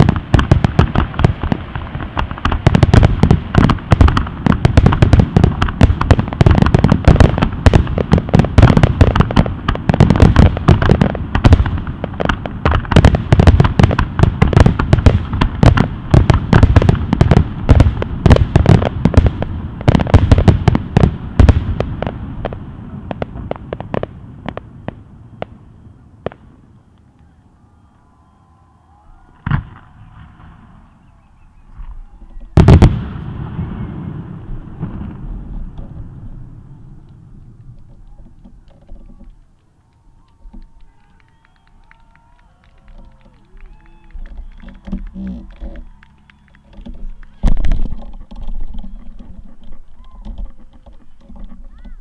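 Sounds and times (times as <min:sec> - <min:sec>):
fireworks bangs and crackles: 0:00.0 - 0:27.1, 0:29.4 - 0:31.0, 0:31.6 - 0:52.0
loud firework bang: 0:29.4 - 0:30.8, 0:31.8 - 0:36.9.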